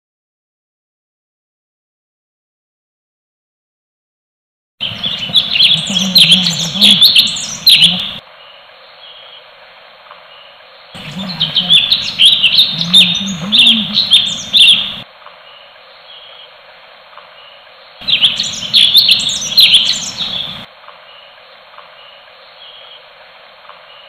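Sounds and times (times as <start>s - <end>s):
birds chattering rapidly: 4.8s - 9.5s, 10.2s - 23.1s.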